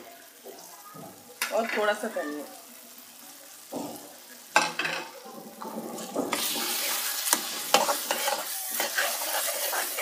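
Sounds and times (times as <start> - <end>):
bubbling sizzle: 0.0 - 10.0
spoon scraping a pan: 4.6 - 10.0.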